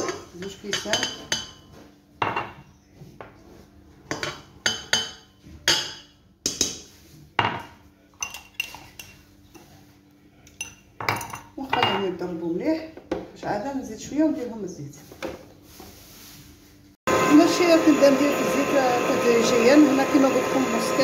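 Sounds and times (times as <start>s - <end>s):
glass clinking on metal bowl: 7.4s - 9.2s, 10.5s - 12.1s.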